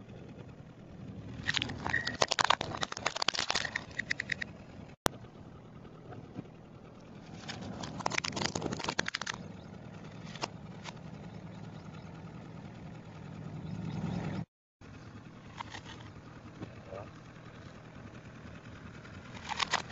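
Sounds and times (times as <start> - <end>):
car engine running low: 0.0 - 19.9
plastic toys cracking under tyre: 1.4 - 4.5, 7.3 - 9.4, 19.3 - 19.9.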